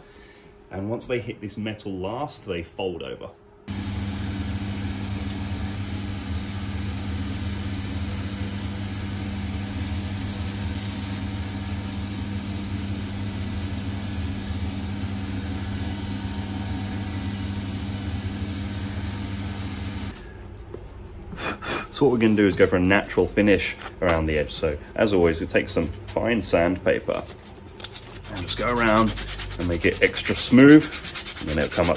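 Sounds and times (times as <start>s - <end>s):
machine motor hum: 3.7s - 20.2s
sanding wheel on rubber sole: 6.7s - 20.1s, 28.1s - 31.9s.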